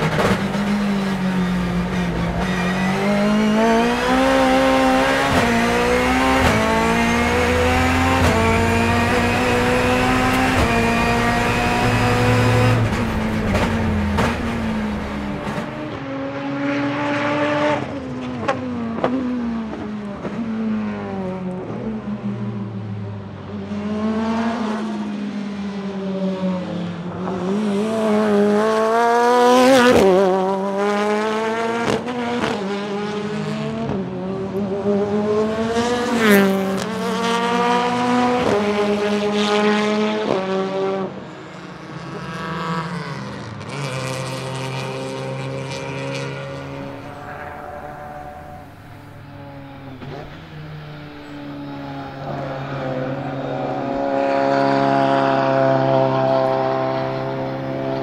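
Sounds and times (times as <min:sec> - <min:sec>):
race car engine passing: 0:00.0 - 0:18.2, 0:34.6 - 0:58.0.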